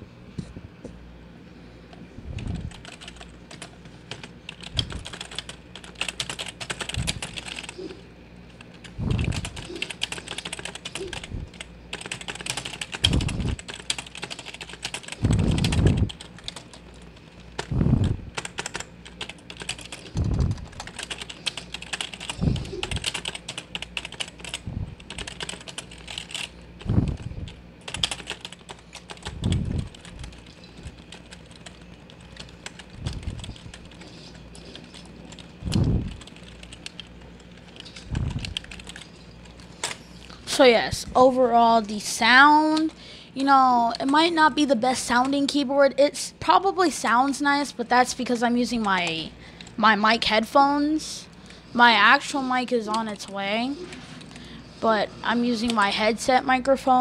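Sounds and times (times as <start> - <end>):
fast keyboard typing: 2.3 - 7.9, 8.5 - 40.0.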